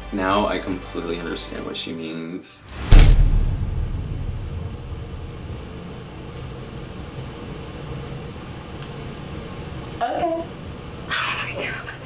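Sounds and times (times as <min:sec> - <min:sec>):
low rumble: 0:02.8 - 0:07.2
faint hum tones: 0:02.8 - 0:12.0.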